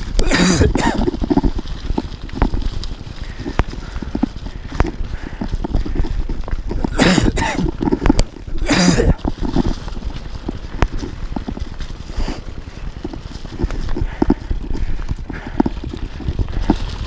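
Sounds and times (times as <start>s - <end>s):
bike rattling down dirt trail: 0.0s - 17.0s
man coughing hard: 0.2s - 1.1s, 6.9s - 7.7s, 8.6s - 9.2s.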